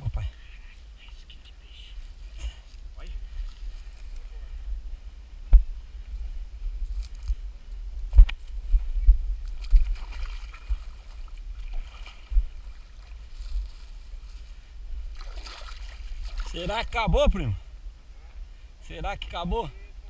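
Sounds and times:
microphone rumble and bumps: 2.2s - 18.0s.

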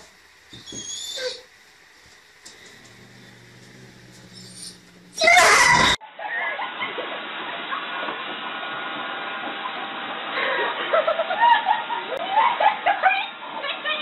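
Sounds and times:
vacuum cleaner hissing: 0.0s - 6.0s
dog crying: 0.6s - 1.5s, 3.0s - 6.0s.

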